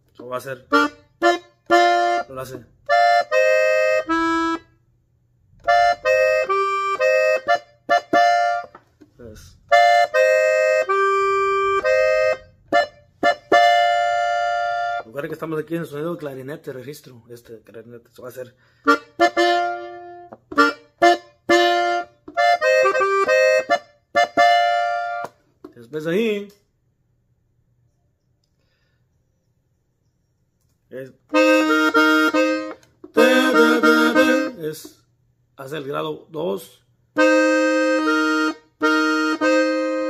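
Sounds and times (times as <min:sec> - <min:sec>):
button accordion melody: 0:00.3 - 0:04.9, 0:05.6 - 0:15.3, 0:18.8 - 0:25.5, 0:31.3 - 0:35.0, 0:37.1 - 0:40.0.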